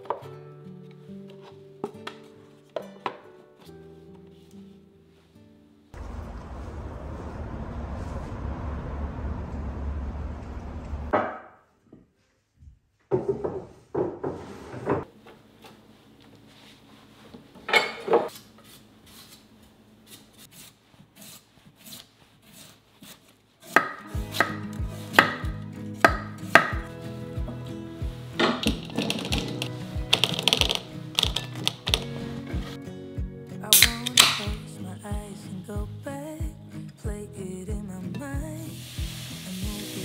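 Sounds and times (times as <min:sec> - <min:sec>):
knife scraping radish slices: 0:18.3 - 0:25.4.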